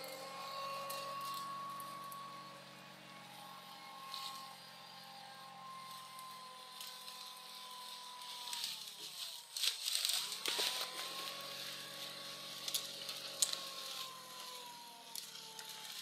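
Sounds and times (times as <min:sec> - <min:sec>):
motor running: 0:00.0 - 0:16.0
log dragged across leaves: 0:05.8 - 0:14.6
twigs cracking: 0:06.2 - 0:16.0.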